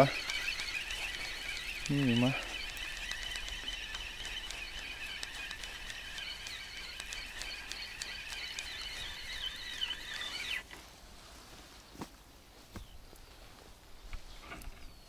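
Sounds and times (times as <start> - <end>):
fishing reel whining and clicking: 0.0 - 10.7.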